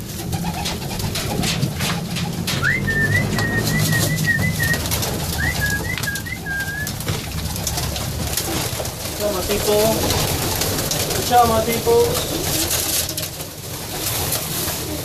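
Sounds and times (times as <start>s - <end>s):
pigeons cooing: 0.0s - 15.0s
wings flapping: 0.0s - 15.0s
high chirping notes: 2.6s - 6.9s.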